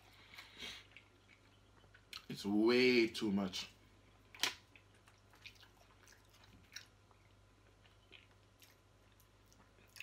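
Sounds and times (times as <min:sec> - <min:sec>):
chewing spaghetti: 0:00.1 - 0:02.3, 0:04.6 - 0:10.0.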